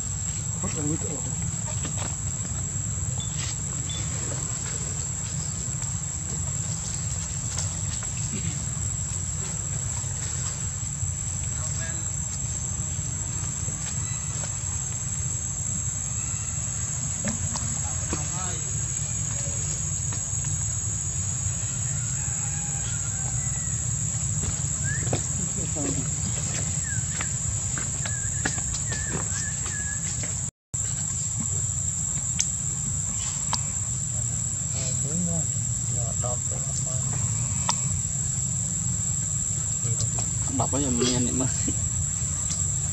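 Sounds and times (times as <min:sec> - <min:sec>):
constant low rumble: 0:00.0 - 0:42.9
high-pitched insect drone: 0:00.0 - 0:42.9.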